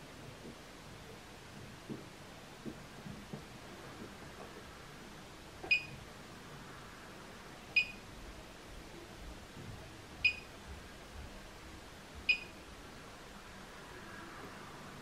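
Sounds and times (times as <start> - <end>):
short electronic beeps: 12.3 - 12.5.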